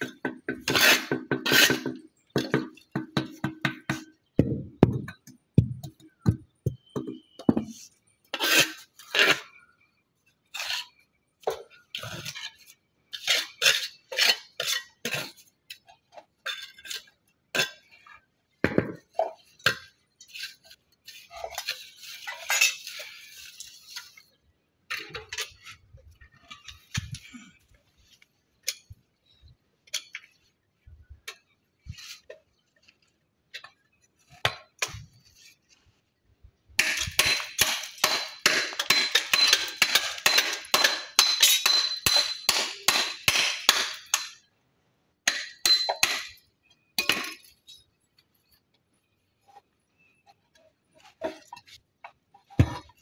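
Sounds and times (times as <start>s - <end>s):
stone pieces and tools clinking: 36.8s - 44.5s, 45.3s - 48.0s.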